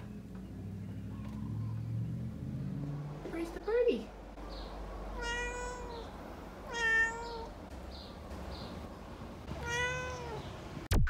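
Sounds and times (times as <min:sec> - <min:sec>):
cat meowing: 0:05.2 - 0:07.6, 0:09.5 - 0:10.6.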